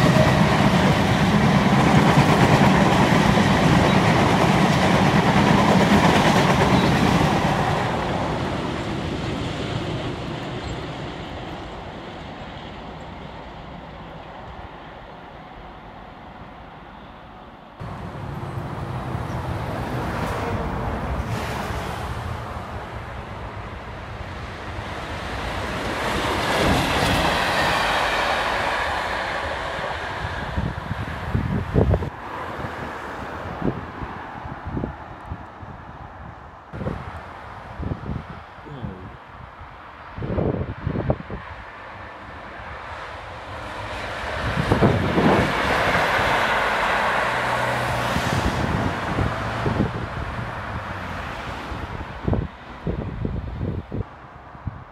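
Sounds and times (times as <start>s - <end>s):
diesel locomotive passing: 0.0s - 54.9s
diesel engine hum: 17.8s - 21.1s
wind buffeting microphone: 23.8s - 54.9s.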